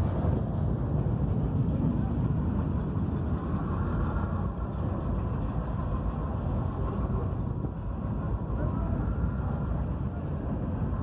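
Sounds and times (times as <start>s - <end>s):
freight train wheels rumbling: 0.0s - 11.0s.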